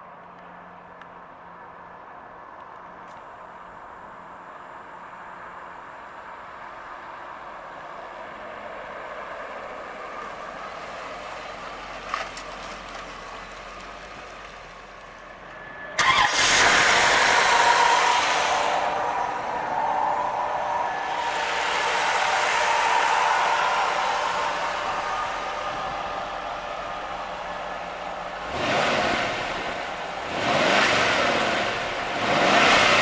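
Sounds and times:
car engine running: 9.5s - 33.0s.

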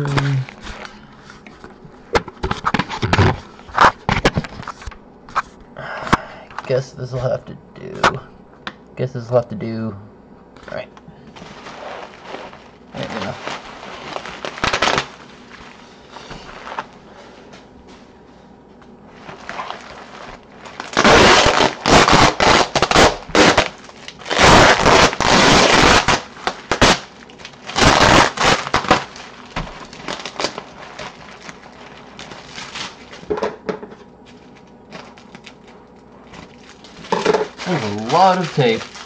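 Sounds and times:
packing tape ripping: 11.4s - 15.8s, 19.2s - 33.3s, 34.3s - 39.0s
bubble wrap crinkling: 11.4s - 17.2s, 19.1s - 33.3s, 34.1s - 39.0s.

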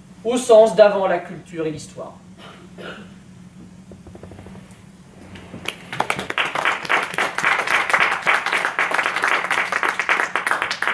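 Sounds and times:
audience applauding: 5.3s - 10.9s.

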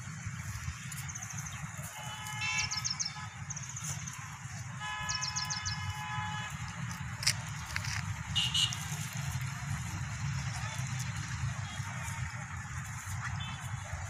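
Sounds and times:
vehicle horn: 2.0s - 3.4s, 4.8s - 6.6s, 8.3s - 9.0s.

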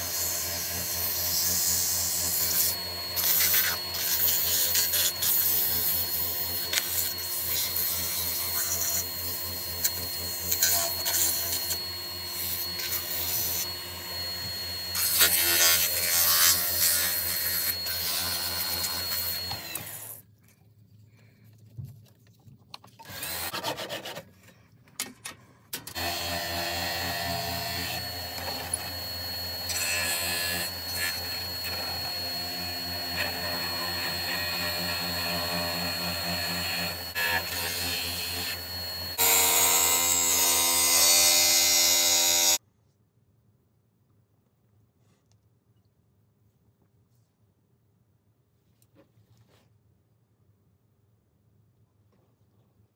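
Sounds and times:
sandpaper rubbing spinning wood: 0.0s - 13.7s
thin high whine: 0.0s - 20.2s, 25.9s - 42.5s
wood lathe motor humming: 0.1s - 20.1s, 25.9s - 42.6s
turning tool scraping wood: 21.8s - 24.7s.

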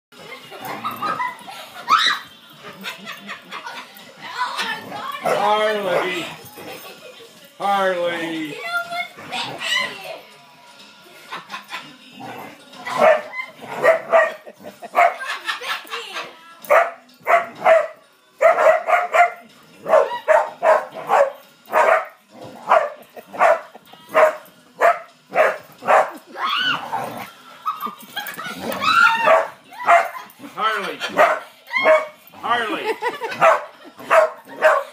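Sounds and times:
dogs crying: 0.3s - 6.9s, 12.8s - 34.9s
dogs barking excitedly: 4.6s - 6.4s, 12.9s - 15.8s, 16.7s - 32.2s, 32.8s - 34.9s.

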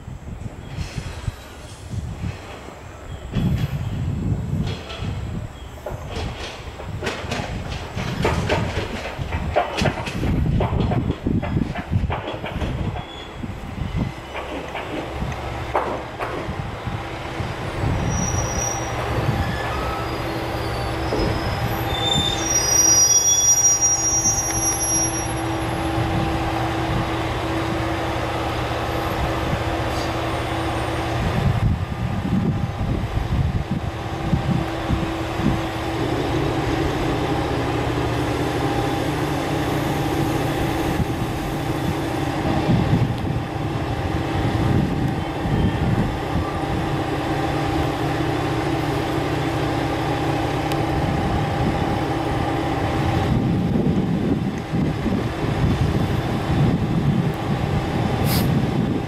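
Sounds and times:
train wheels rumbling: 0.0s - 59.0s
high-pitched wheel squeal: 17.8s - 26.0s
diesel engine drone: 25.2s - 59.0s.

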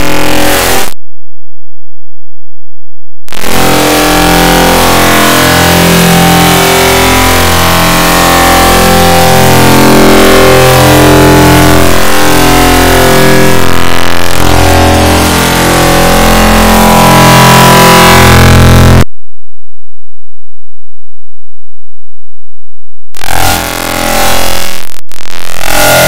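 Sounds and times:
heavily distorted overlapping music: 23.2s - 26.0s.

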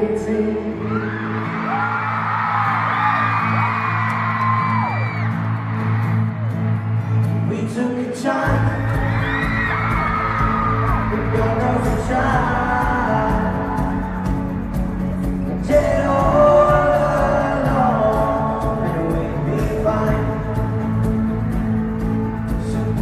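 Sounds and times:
band singing pop ballad: 0.0s - 2.2s, 7.4s - 23.0s
crowd screaming: 0.7s - 7.7s, 8.4s - 13.3s
deep bass: 8.5s - 23.0s.

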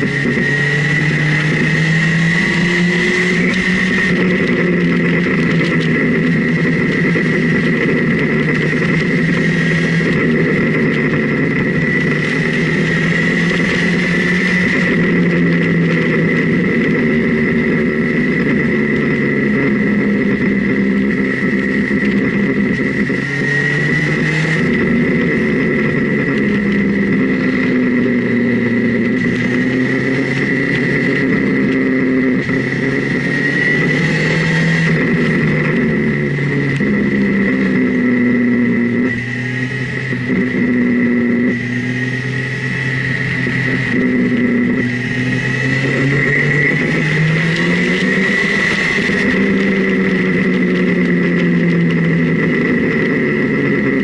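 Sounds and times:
high whine: 0.0s - 54.0s
motorcycle engine revving: 0.0s - 54.0s
rushing wind: 0.0s - 54.0s.

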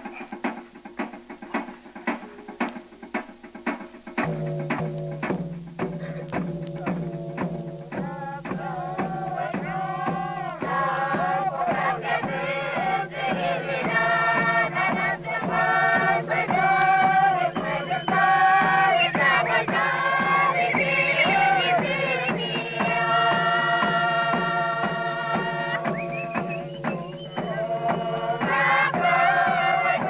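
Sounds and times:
regular drum beat: 0.0s - 30.0s
group chanting: 7.9s - 30.0s.

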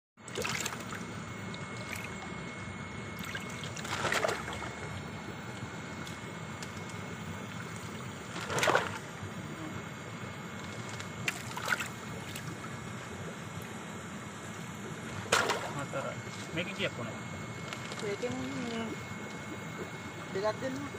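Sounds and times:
fish splashing: 0.3s - 2.5s, 3.1s - 5.4s, 6.0s - 9.2s, 10.8s - 12.7s, 15.2s - 15.9s
water sloshing in a basin: 0.3s - 9.2s, 10.8s - 12.8s, 15.2s - 16.0s.

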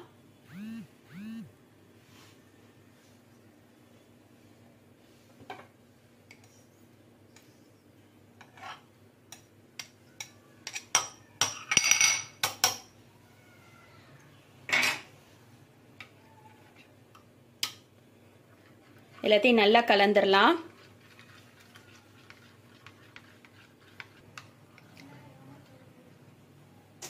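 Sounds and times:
cutlery clinking against glass bowl: 8.4s - 12.9s.

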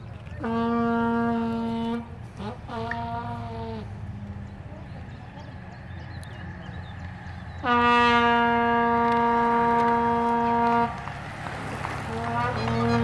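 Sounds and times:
cyclists riding past: 0.0s - 13.0s
horn long steady note: 0.4s - 4.8s, 7.4s - 11.4s, 12.0s - 13.0s.

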